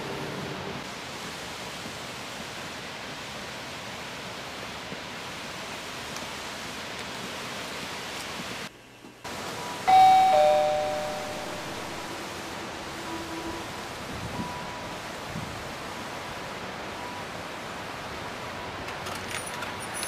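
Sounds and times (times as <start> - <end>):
outdoor background hiss: 0.0 - 20.0
two-note doorbell chime: 9.9 - 11.8.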